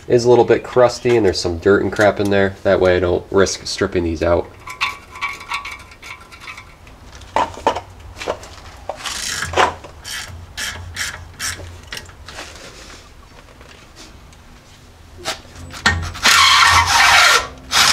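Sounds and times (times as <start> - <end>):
metal scraping and knocking: 4.4 - 12.7, 15.2 - 17.5
ratchet wrench clicking: 9.1 - 11.6.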